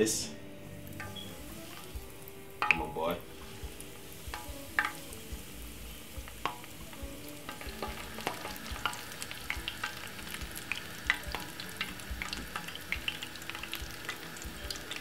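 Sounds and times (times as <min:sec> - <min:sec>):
fish sizzling in hot oil: 0:00.8 - 0:15.0
oil crackling pops: 0:00.9 - 0:15.0.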